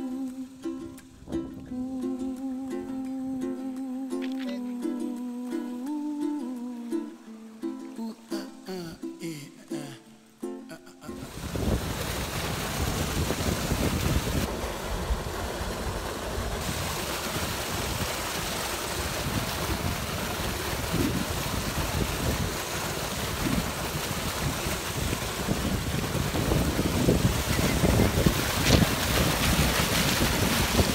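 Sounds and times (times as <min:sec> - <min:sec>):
wind on microphone: 0:01.0 - 0:01.9, 0:11.2 - 0:30.9
pond aerator churning water: 0:11.2 - 0:30.9.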